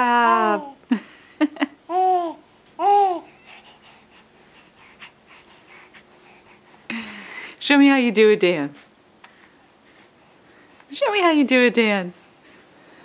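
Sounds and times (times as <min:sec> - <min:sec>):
infant cooing: 0:00.2 - 0:00.8, 0:01.9 - 0:03.4.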